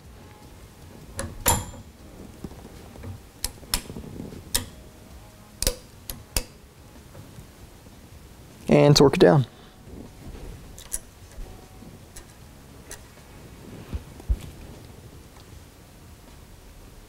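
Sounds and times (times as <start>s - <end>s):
wrench metal clicks: 4.5s - 4.8s, 5.6s - 6.6s, 10.8s - 11.4s.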